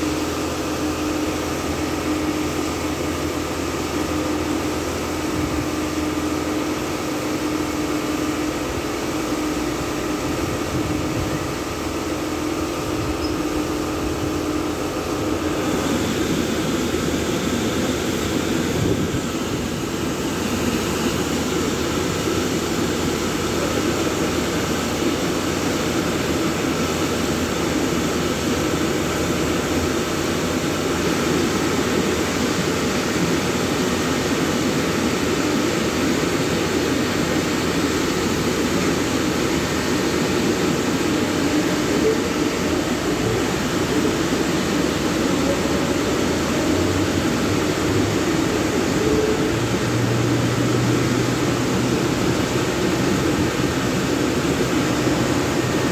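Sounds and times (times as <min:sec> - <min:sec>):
car wash motor hum: 0:00.0 - 0:55.9.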